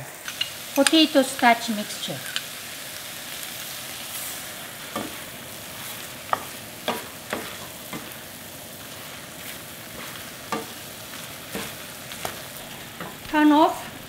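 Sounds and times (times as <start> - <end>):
food sizzling in a skillet: 0.0 - 14.0
wooden spoon knocking a pan: 4.9 - 5.2, 6.3 - 8.2, 10.0 - 10.8, 11.5 - 13.9.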